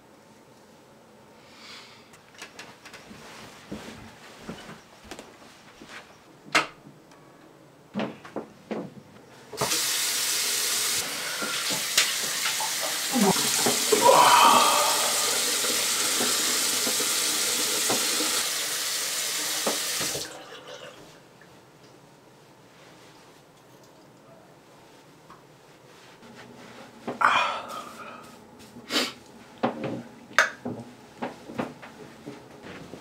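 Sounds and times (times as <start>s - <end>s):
sink tap running: 9.6s - 14.0s, 14.9s - 20.4s
short rising cry: 13.9s - 15.6s.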